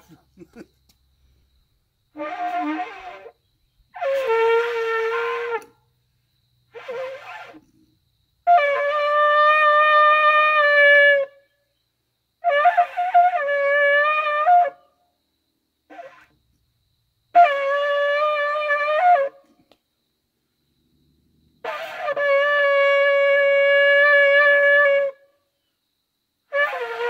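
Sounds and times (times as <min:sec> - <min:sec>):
shofar blasts: 0:02.1 - 0:03.4, 0:04.0 - 0:05.8, 0:06.7 - 0:07.6, 0:08.4 - 0:11.3, 0:12.4 - 0:14.8, 0:17.3 - 0:19.4, 0:21.6 - 0:25.2, 0:26.5 - 0:27.0.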